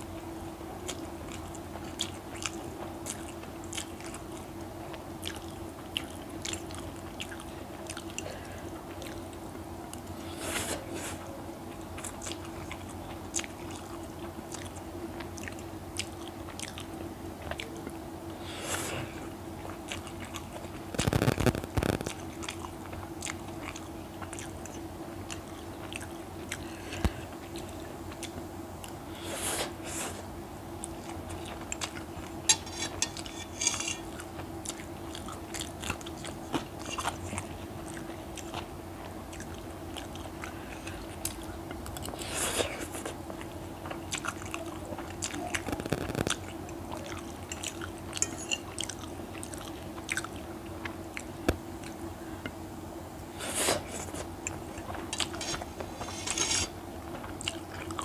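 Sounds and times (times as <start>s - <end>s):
steady low hum: 0.0s - 58.0s
chewing and slurping noodles: 0.8s - 52.1s, 53.3s - 58.0s
fork clicking on plate: 32.5s - 34.1s.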